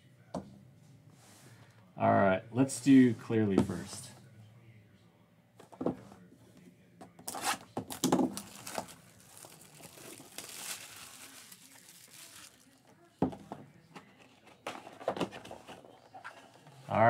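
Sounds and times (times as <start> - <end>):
plastic shrink wrap crinkling and tearing: 7.3 - 12.9.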